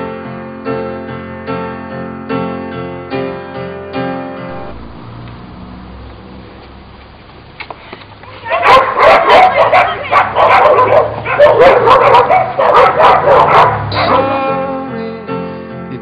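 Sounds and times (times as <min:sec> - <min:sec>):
dog barking: 0:08.3 - 0:14.3.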